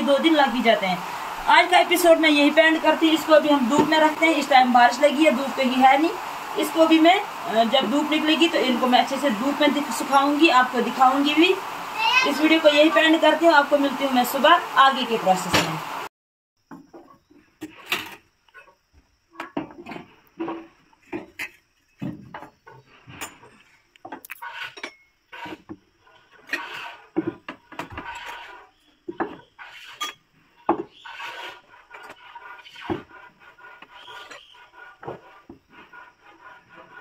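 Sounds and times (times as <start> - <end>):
glass and metal clinks and scrapes: 23.1 - 25.2, 29.9 - 30.2.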